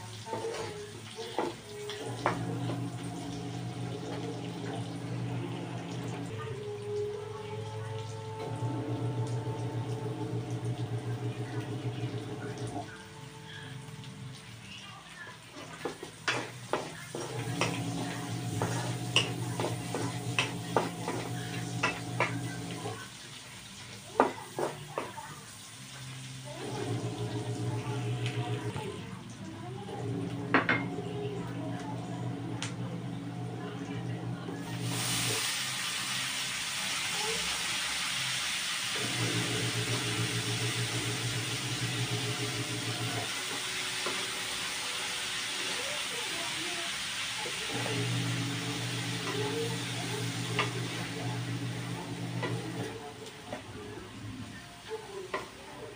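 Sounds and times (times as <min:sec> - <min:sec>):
meat sizzling in a wok: 0:00.0 - 0:07.2, 0:14.0 - 0:28.0, 0:34.6 - 0:55.9
wooden spatula stirring: 0:15.8 - 0:22.8.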